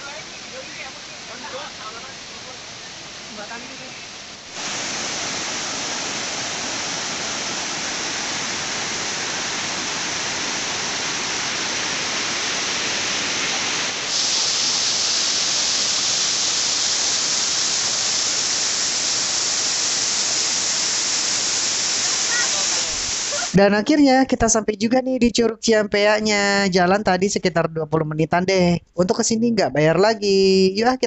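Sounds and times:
waterfall: 0.0s - 23.6s.

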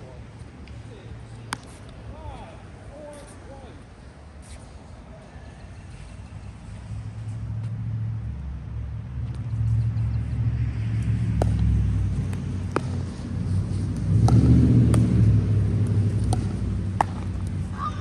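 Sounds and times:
paddles hitting plastic ball: 11.3s - 13.1s, 15.8s - 17.6s.

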